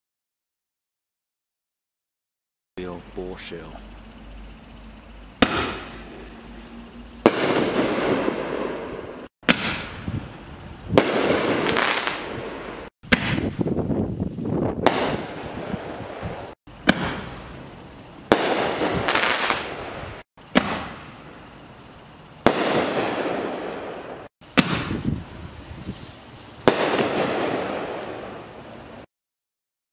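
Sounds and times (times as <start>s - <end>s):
firework crackle: 5.0s - 29.1s
firework shell bursting overhead: 5.2s - 13.9s, 14.6s - 25.6s, 26.5s - 29.1s
firework shell launching bang: 5.4s - 6.4s, 7.2s - 8.9s, 9.5s - 10.2s, 10.9s - 12.5s, 13.1s - 13.7s, 14.8s - 15.7s, 16.8s - 17.4s, 20.5s - 21.2s, 24.5s - 25.0s, 26.6s - 28.0s.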